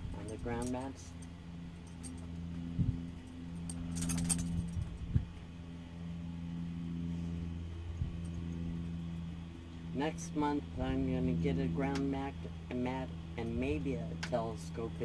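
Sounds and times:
low mechanical hum: 0.0 - 15.0
metallic jingle: 3.2 - 4.9.

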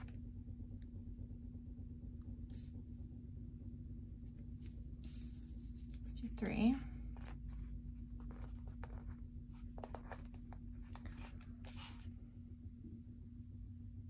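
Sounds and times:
steady low hum: 0.0 - 14.0
paper rustling: 7.1 - 12.1.

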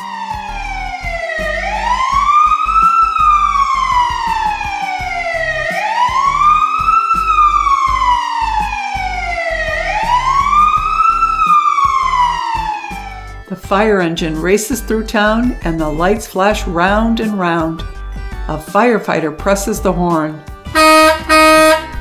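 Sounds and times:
siren wailing: 0.0 - 13.5, 20.8 - 22.0.

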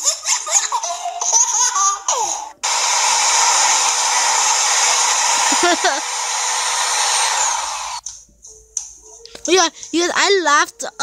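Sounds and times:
electric fan blowing air: 2.6 - 8.0.

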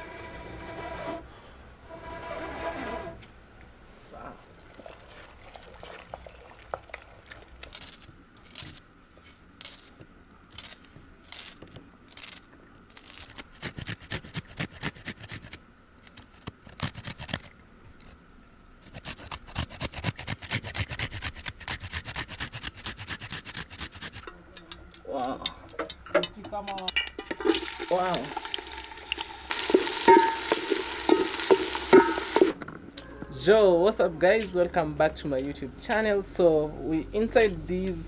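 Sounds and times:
food scraping on box grater: 13.0 - 15.6, 16.6 - 17.5, 18.8 - 24.3.

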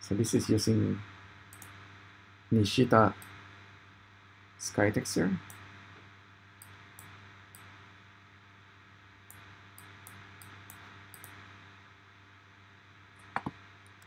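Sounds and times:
faint room hum and hiss: 0.0 - 14.0
computer mouse clicks: 1.5 - 1.8, 9.3 - 11.4, 13.2 - 14.0.

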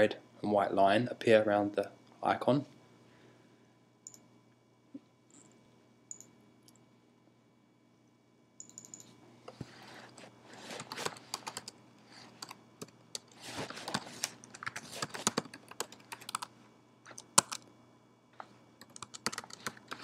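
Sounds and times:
typing on computer keyboard: 10.8 - 11.8, 12.4 - 16.5, 17.1 - 17.6, 18.8 - 20.0.

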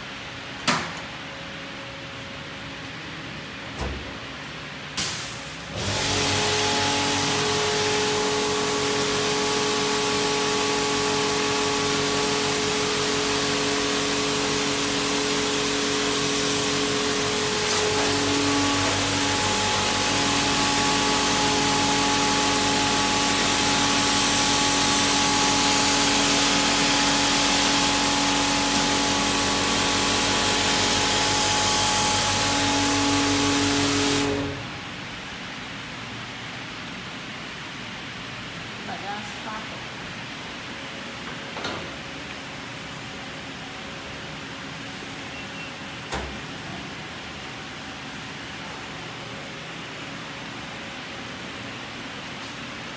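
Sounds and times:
pump humming: 5.7 - 35.0
high-pressure water jet hissing: 12.8 - 34.5.

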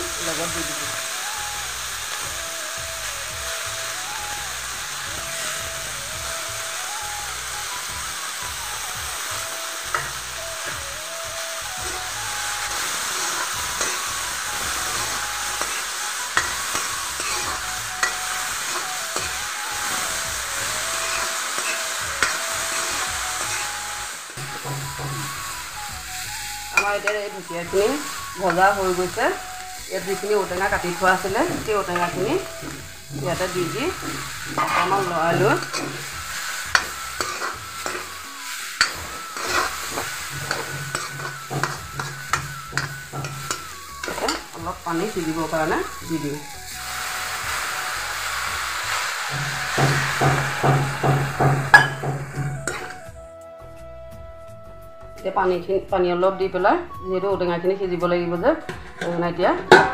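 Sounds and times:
vegetables sizzling in oil: 0.0 - 53.3, 55.2 - 59.9
spatula scraping a wok: 9.2 - 53.1, 58.6 - 59.9.

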